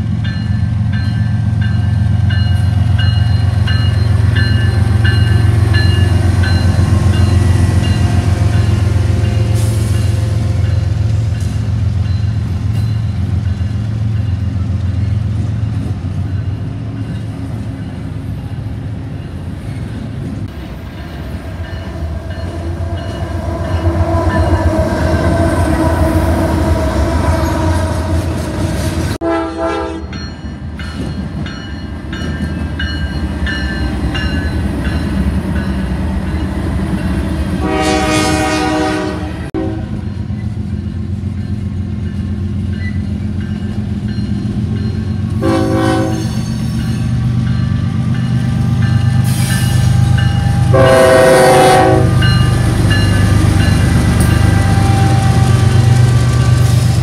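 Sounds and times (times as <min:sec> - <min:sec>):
locomotive rumbling past: 0:00.0 - 0:57.0
locomotive air horn blasts: 0:29.2 - 0:30.1, 0:37.6 - 0:40.0, 0:45.4 - 0:46.3, 0:50.4 - 0:52.3.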